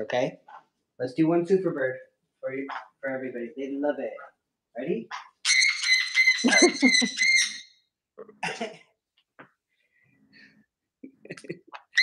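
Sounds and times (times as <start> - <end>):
parrot whistling: 5.1 - 7.8
faint squeaks and chirps: 5.1 - 7.9.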